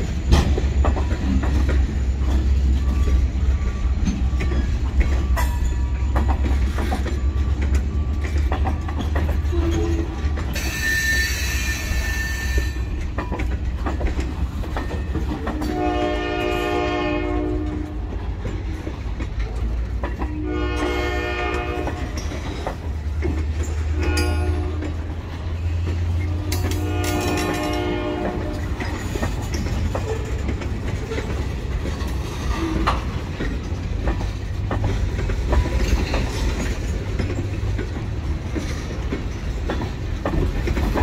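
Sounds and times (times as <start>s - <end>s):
train rumble with clicking wheels: 0.0s - 41.0s
wheel squeal: 9.0s - 12.9s
locomotive horn blasts: 15.5s - 18.2s, 20.2s - 22.2s, 23.9s - 25.0s, 26.3s - 28.8s.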